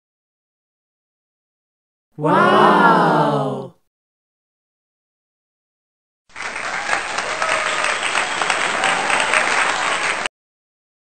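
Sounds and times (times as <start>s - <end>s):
crowd applauding: 6.3s - 10.3s.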